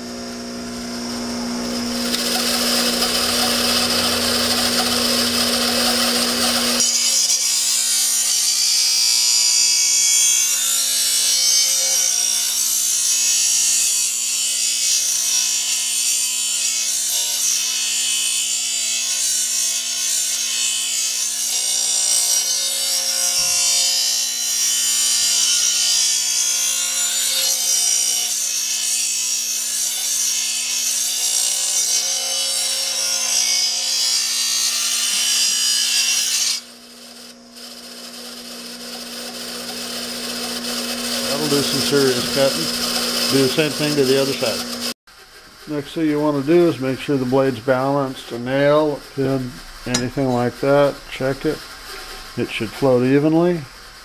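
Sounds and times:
bench grinder motor hum: 0.0s - 16.8s, 23.3s - 45.0s
steel grinding on wheel: 1.6s - 8.6s, 23.0s - 54.0s.

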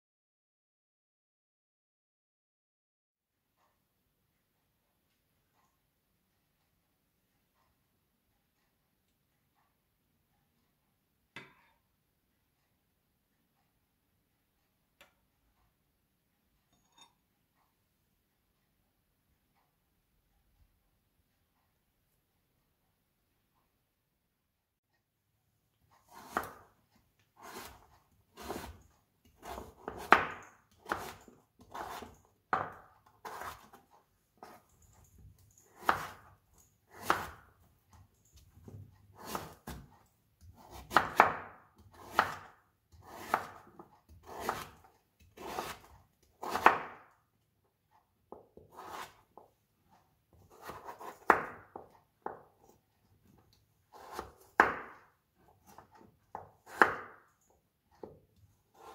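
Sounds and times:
knife chopping on plastic board: 26.1s - 26.8s, 27.4s - 34.7s, 35.6s - 47.1s, 48.3s - 49.5s, 50.3s - 57.3s, 58.0s - 58.9s.

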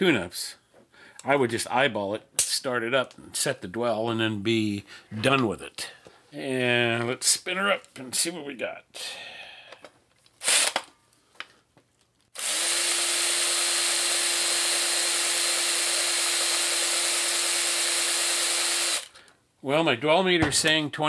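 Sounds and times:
cordless drill spinning: 10.4s - 10.9s, 12.3s - 19.2s
handling knocks: 20.3s - 21.0s.

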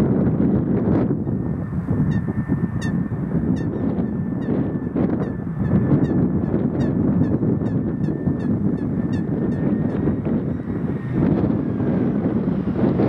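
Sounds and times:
jet engines rumbling: 0.0s - 13.0s
wind on microphone: 0.0s - 13.0s
bird honking calls: 2.0s - 11.1s.

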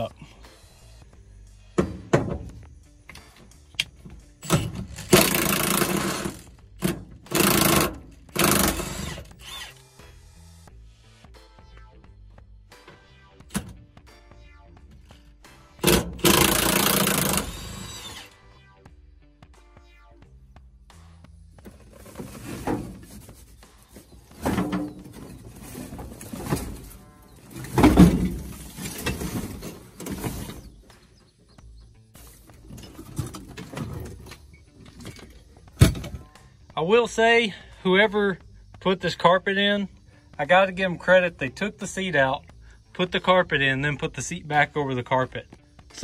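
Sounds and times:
clunks and knocks: 1.8s - 3.2s, 21.6s - 23.4s, 24.0s - 30.7s, 32.6s - 36.3s
impact wrench hammering: 4.4s - 9.4s, 15.8s - 18.0s
seat scraping: 21.7s - 30.8s.

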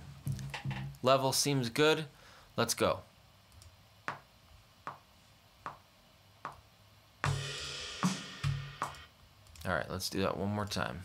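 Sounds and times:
drum track with crash cymbal: 7.2s - 9.1s.

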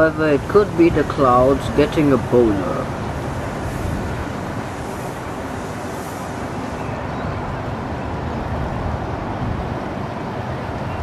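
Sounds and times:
hiss: 0.2s - 7.1s.

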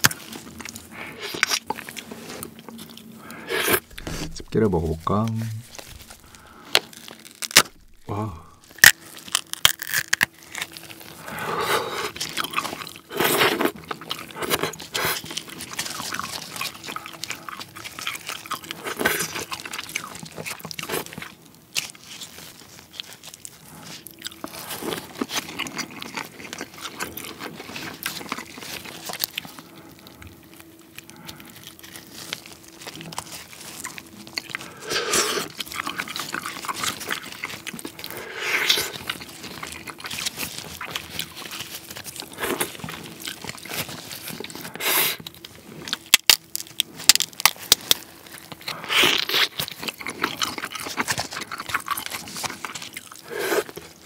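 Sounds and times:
chewing: 0.0s - 4.5s, 5.6s - 54.0s
crab shell cracking: 5.7s - 11.3s, 24.2s - 54.0s.

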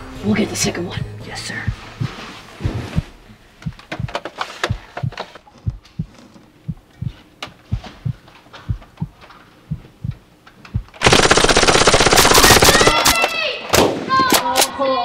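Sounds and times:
heartbeat thumps: 0.7s - 11.0s.

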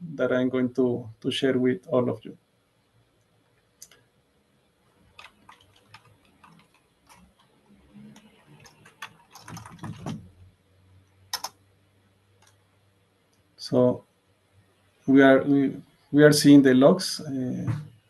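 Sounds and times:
keystrokes on computer keyboard: 5.1s - 7.5s, 8.1s - 10.2s, 11.3s - 11.6s.

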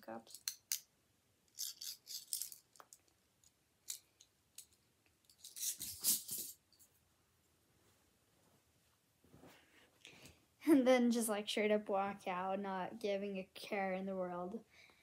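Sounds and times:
metal handcuffs clicking and jingling: 1.5s - 3.1s, 3.8s - 6.6s.

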